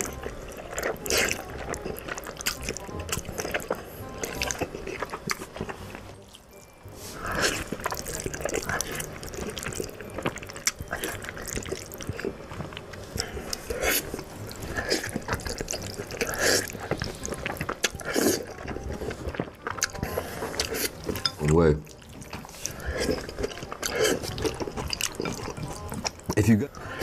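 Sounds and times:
wet chewing mouth sounds: 0.0 - 27.0
person slurping noodles: 7.0 - 9.9, 13.2 - 19.1, 22.5 - 24.6.

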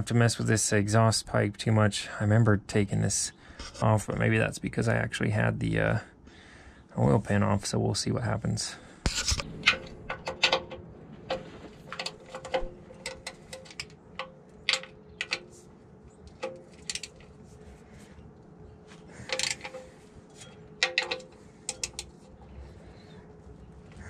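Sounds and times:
faint steady hum: 0.0 - 24.0
hand tools clinking on metal: 9.7 - 17.4, 19.2 - 22.4.

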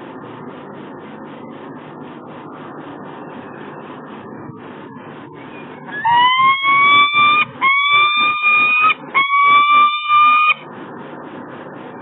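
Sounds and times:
falcon calls: 6.0 - 10.6.

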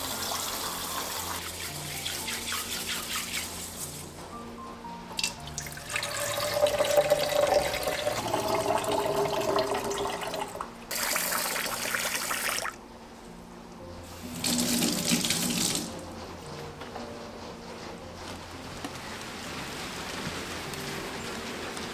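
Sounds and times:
kitchen faucet running: 0.0 - 3.7, 5.2 - 12.8, 14.2 - 15.9
water pouring into container: 5.2 - 12.8, 14.2 - 15.9.

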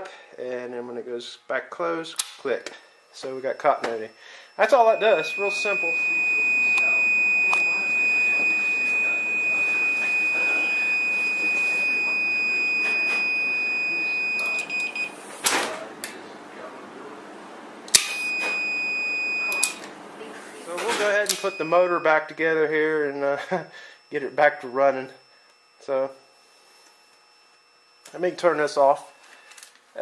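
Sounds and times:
multimeter continuity beep: 3.1 - 15.2, 17.9 - 19.9, 20.8 - 29.4.

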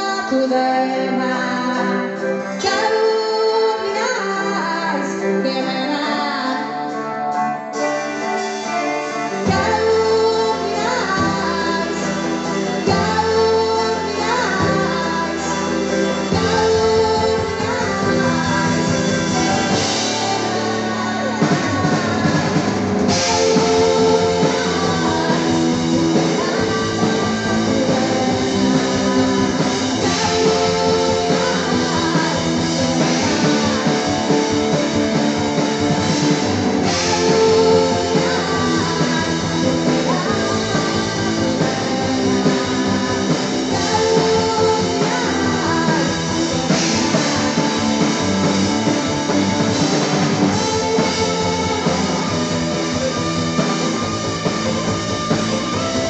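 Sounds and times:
live rock band playing: 0.0 - 56.0
woman singing: 0.0 - 56.0.

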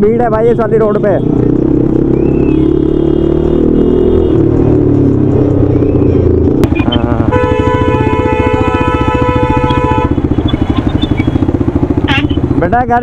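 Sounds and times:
motorcycle engine running: 0.0 - 13.0
vehicle horn steady note: 7.1 - 11.0, 12.0 - 12.5.

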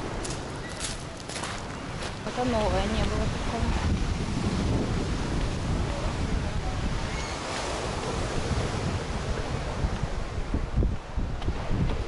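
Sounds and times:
surf breaking on shore: 0.0 - 12.0
wind buffeting microphone: 0.0 - 12.0.

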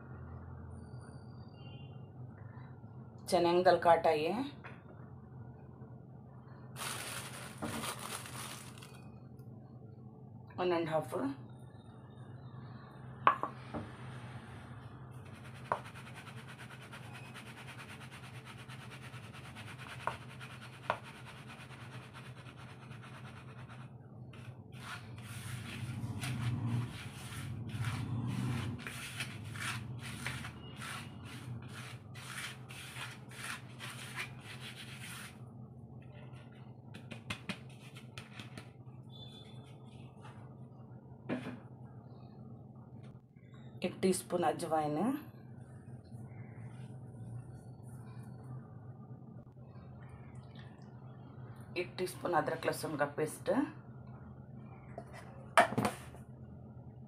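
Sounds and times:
hands rubbing flour in plastic bowl: 15.2 - 35.4
steady low hum: 17.5 - 57.0.

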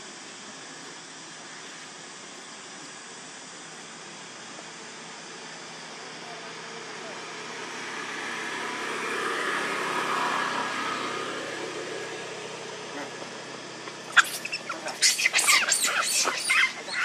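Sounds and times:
steady background noise: 0.0 - 17.0
monkeys shrieking: 12.8 - 17.0.

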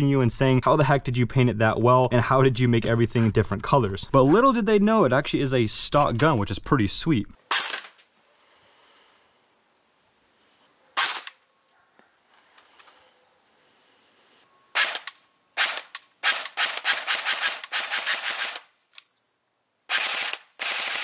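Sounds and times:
airsoft rifle firing: 11.0 - 11.4, 14.8 - 18.7, 19.9 - 21.0.

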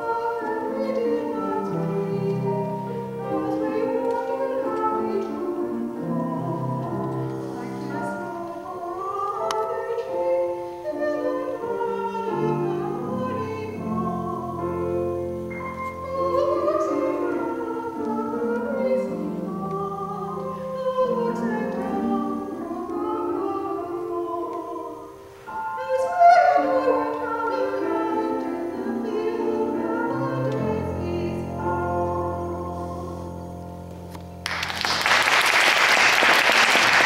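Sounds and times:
woman singing operatic style: 0.0 - 33.4
piano accompaniment: 0.0 - 37.0
audience applause: 34.4 - 37.0.

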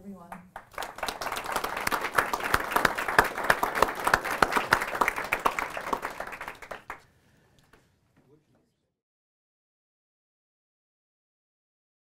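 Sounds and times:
audience applauding: 0.5 - 7.0.

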